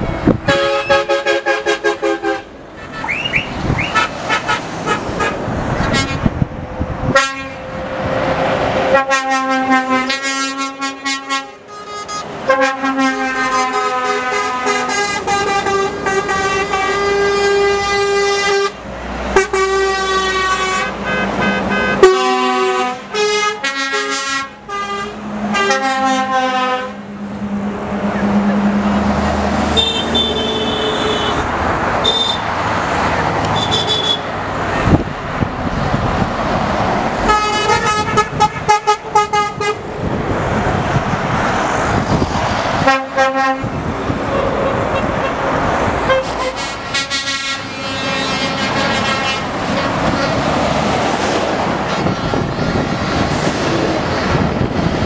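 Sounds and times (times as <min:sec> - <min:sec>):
trucks driving past: 0:00.0 - 0:55.0
lorry air horns blowing: 0:00.5 - 0:03.3, 0:03.9 - 0:06.3, 0:07.1 - 0:07.8, 0:08.9 - 0:27.0, 0:29.7 - 0:31.4, 0:37.3 - 0:39.8, 0:42.8 - 0:43.7, 0:46.0 - 0:50.4.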